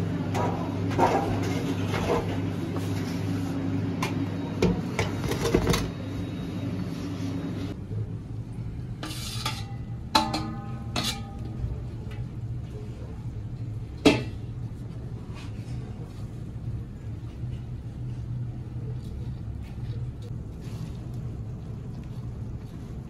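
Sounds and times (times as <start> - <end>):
steady low hum: 0.0 - 23.0
metal utensils clattering: 9.1 - 11.4.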